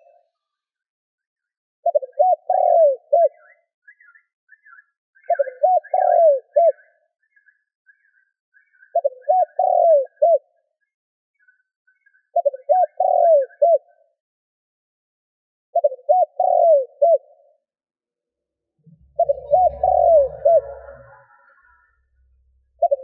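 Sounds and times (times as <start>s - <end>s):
dove cooing: 1.8s - 3.5s, 5.3s - 6.9s, 9.0s - 10.5s, 12.4s - 14.0s, 15.8s - 17.6s, 19.0s - 21.8s, 22.8s - 23.0s
faint higher bird notes: 18.7s - 23.0s.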